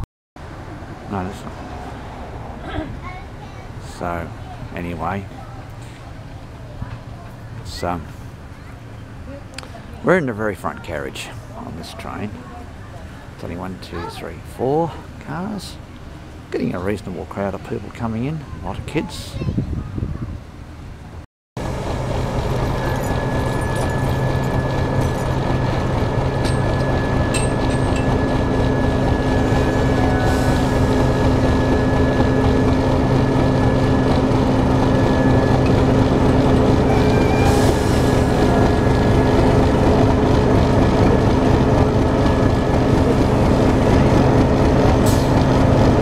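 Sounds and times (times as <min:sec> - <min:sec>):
thin steady whine: 0:21.6 - 0:37.0
diesel locomotive engine drone: 0:21.6 - 0:46.0.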